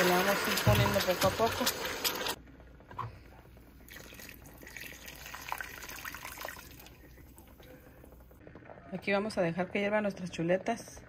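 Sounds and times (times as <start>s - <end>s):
liquid pouring into a pot: 0.0s - 2.4s, 3.8s - 7.6s
liquid sizzling in hot oil: 0.0s - 2.4s.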